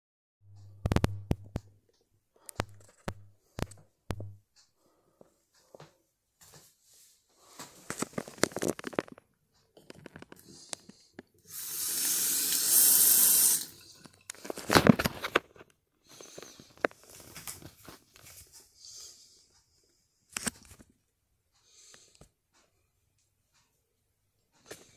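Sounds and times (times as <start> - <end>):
faucet water running: 11.5 - 14.0.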